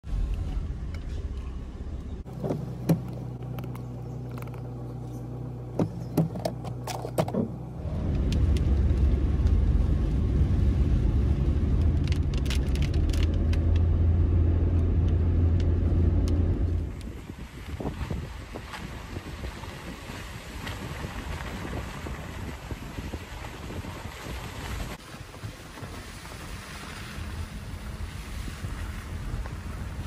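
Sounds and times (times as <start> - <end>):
car engine hum: 0.0 - 22.1, 25.5 - 30.0
car rumbling on the road: 0.0 - 30.0
sharp clicks and knocks: 2.4 - 4.7, 5.8 - 7.6.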